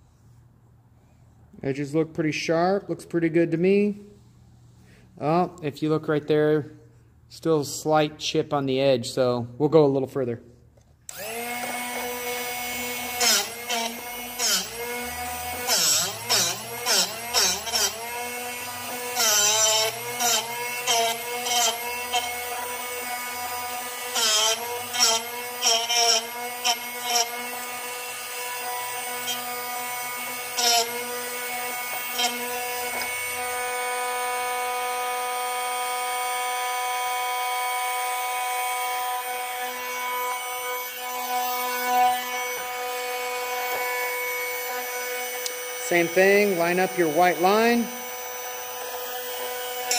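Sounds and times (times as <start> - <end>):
drill bit grinding rasps: 11.1 - 49.9
sharpener motor hum: 11.1 - 49.9.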